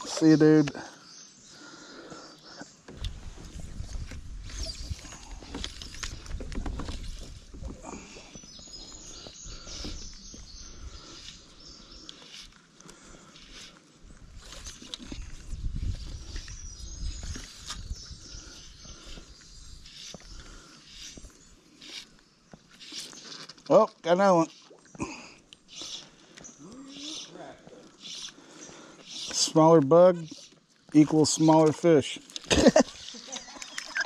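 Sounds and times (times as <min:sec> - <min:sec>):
birds chirping: 0:00.0 - 0:34.0
wind rumble on microphone: 0:03.0 - 0:07.9, 0:14.2 - 0:19.9.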